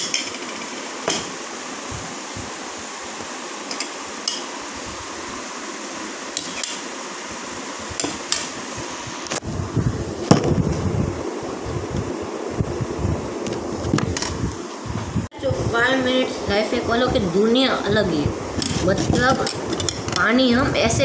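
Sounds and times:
handling bumps and rumbling: 9.8 - 11.1.

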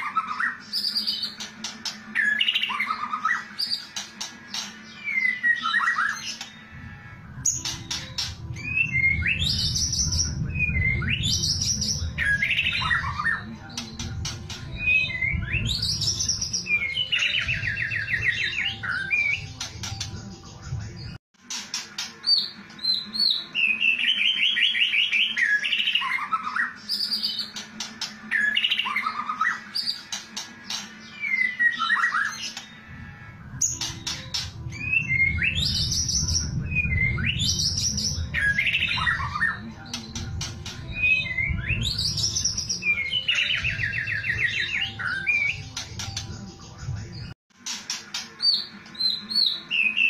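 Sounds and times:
songbird whistles and trills: 0.0 - 33.0, 33.6 - 46.7
low rumble: 6.8 - 13.1, 32.9 - 42.6.

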